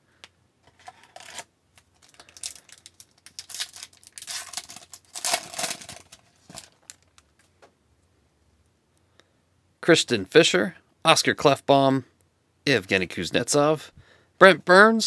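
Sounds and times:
foil wrapper crinkling and tearing: 0.7 - 7.4.

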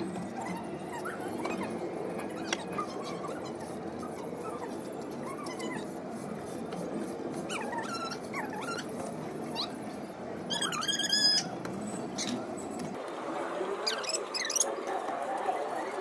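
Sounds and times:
steady background noise: 0.0 - 16.0
animal whining: 0.2 - 6.0, 7.5 - 9.8, 10.5 - 12.4.

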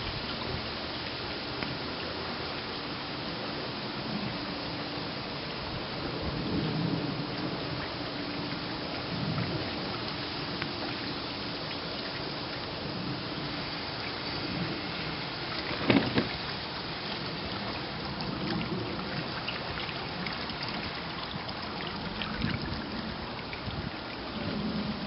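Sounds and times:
outdoor background hiss: 0.0 - 25.0
wind rumble on microphone: 0.0 - 25.0
brief bump: 15.7 - 16.4.

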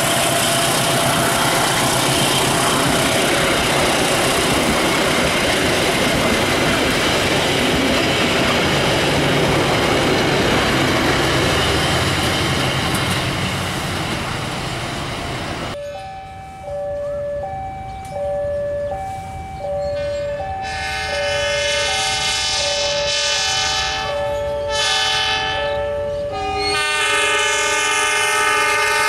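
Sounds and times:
train wheels rushing on rail: 0.0 - 15.8.

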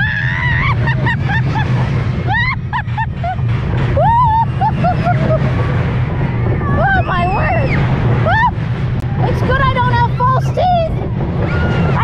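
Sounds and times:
roller coaster rumbling on track: 0.0 - 12.0.

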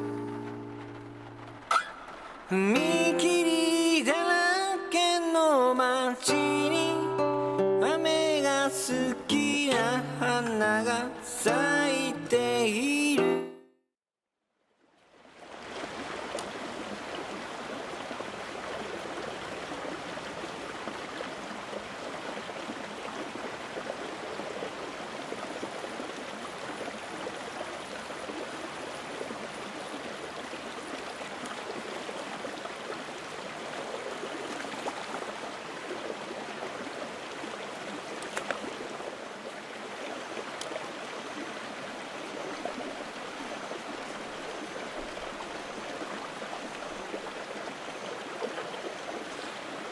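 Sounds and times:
running water: 0.0 - 13.2, 14.9 - 49.9
faint clicks: 38.2 - 38.7.

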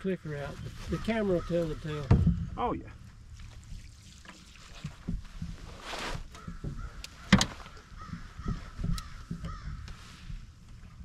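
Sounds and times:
crow cawing: 0.8 - 2.1, 6.4 - 10.0
knocks from handling in boat: 6.4 - 9.9.

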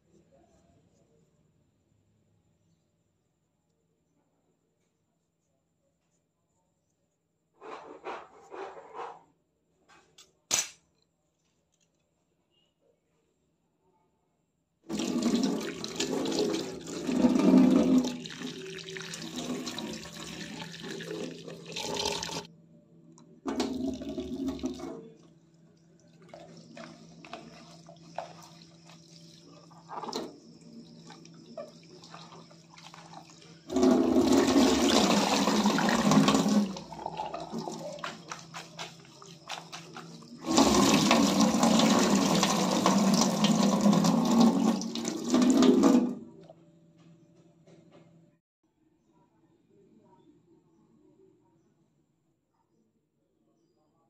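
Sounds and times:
water running into sink: 14.9 - 22.5, 23.5 - 25.3, 26.2 - 46.4.

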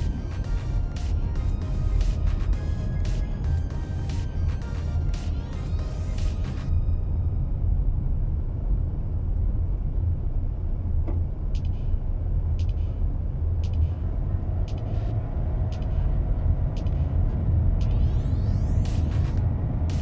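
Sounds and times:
car engine and tyres rumbling: 0.0 - 20.0
faint high ticks: 11.6 - 11.9, 12.6 - 13.0, 13.6 - 14.0.

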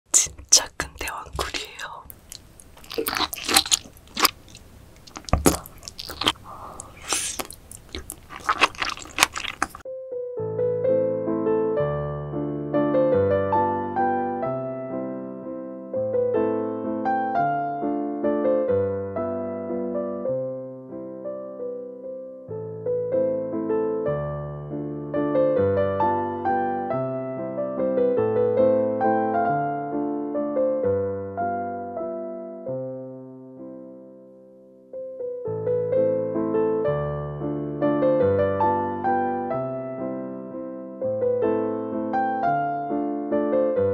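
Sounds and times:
person chewing raw oyster: 0.2 - 9.8
wet clicks and pops: 0.4 - 9.8
electric piano music: 9.9 - 43.9.

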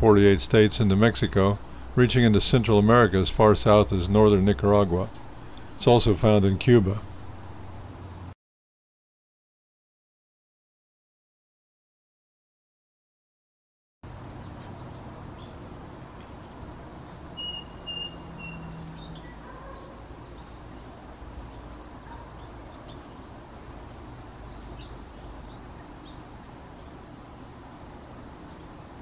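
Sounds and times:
insects trilling: 0.0 - 8.4, 14.1 - 29.0
bird chirps and whistles: 16.5 - 19.4.

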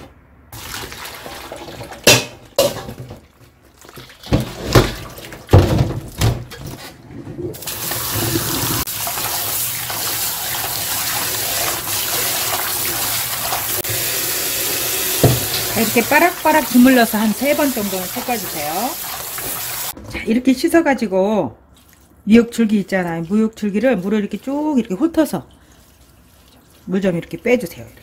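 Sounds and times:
water draining from a pot splashing: 0.5 - 5.6, 7.6 - 20.0
kitchen tap running: 7.5 - 20.0.

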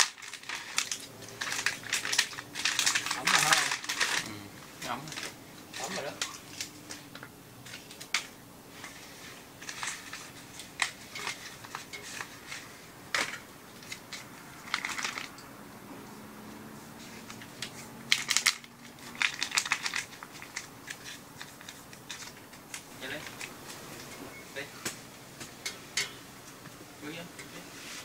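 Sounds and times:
plastic packet crinkling: 0.0 - 15.4, 17.2 - 24.1.

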